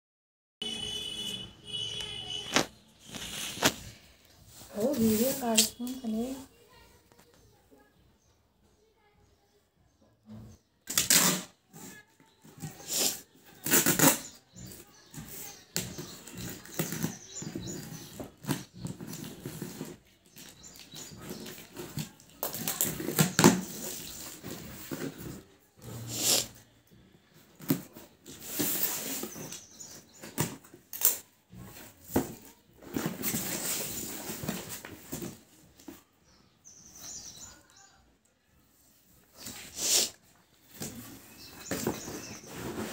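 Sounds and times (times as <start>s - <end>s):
tearing of packing tape: 10.8s - 11.8s, 12.8s - 14.4s, 18.4s - 25.2s, 30.4s - 31.3s
cardboard box being unpacked: 15.9s - 25.5s, 27.6s - 35.6s, 40.7s - 42.9s.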